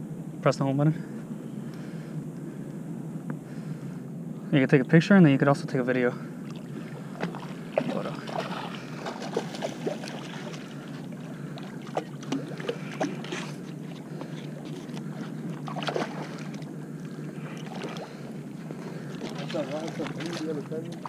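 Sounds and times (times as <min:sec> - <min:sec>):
fish splashing: 0:06.4 - 0:21.0.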